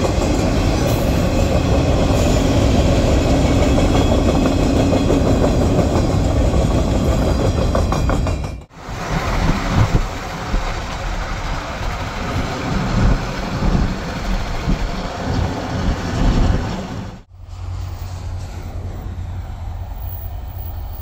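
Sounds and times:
car wind and tyre noise: 8.7s - 21.0s.

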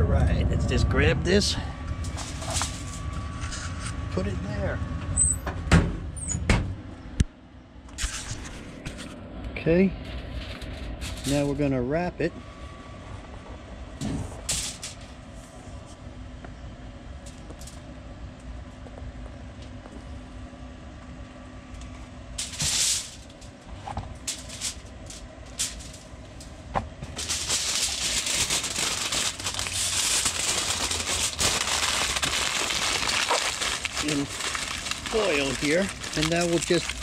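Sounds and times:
low hum: 0.0s - 11.3s, 12.0s - 37.0s
loud rustle: 22.4s - 26.1s, 27.1s - 37.0s
aluminium foil crinkling: 24.2s - 26.5s, 27.1s - 37.0s.

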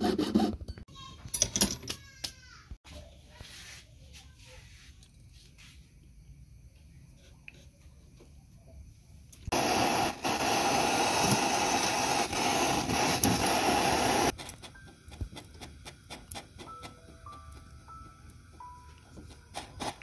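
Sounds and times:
torch flame hissing: 9.5s - 16.7s.

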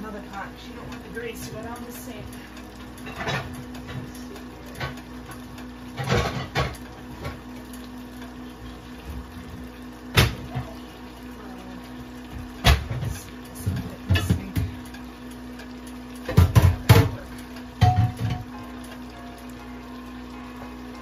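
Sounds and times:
pots knocking and clattering: 2.9s - 7.6s, 9.0s - 10.8s, 12.3s - 15.0s, 16.1s - 18.6s.

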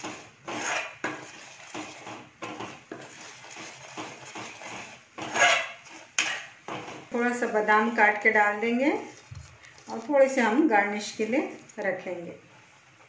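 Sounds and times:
metal spoon scraping steel pan: 0.0s - 7.1s.

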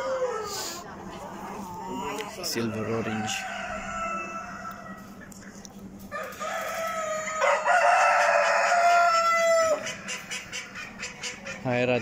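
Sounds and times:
rooster crowing: 0.0s - 0.7s, 1.7s - 5.2s, 6.1s - 10.0s.

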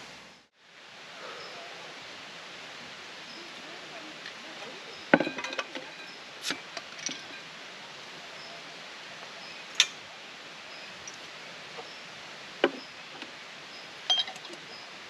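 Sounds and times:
steady background hiss: 0.0s - 15.0s
hard objects clinking and knocking: 5.1s - 6.1s, 14.1s - 14.6s.

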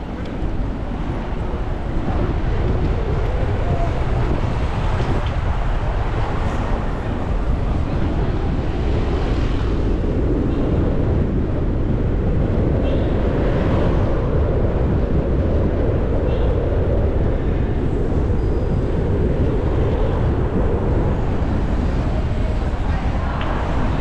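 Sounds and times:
city traffic road noise: 0.0s - 24.0s
wind on microphone: 0.0s - 24.0s.

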